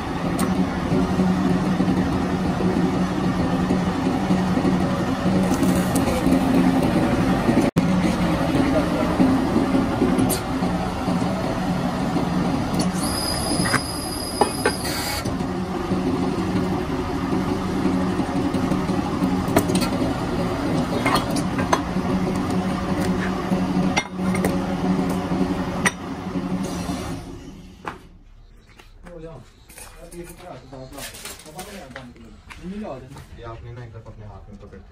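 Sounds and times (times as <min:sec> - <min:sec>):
high-pitched whine: 0:00.0 - 0:21.7
hydraulic pump motor drone: 0:00.0 - 0:28.2.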